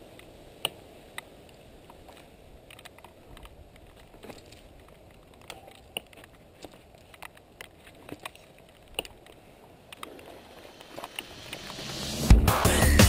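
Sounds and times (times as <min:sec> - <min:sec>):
bike clicking and rattling: 0:01.2 - 0:10.2.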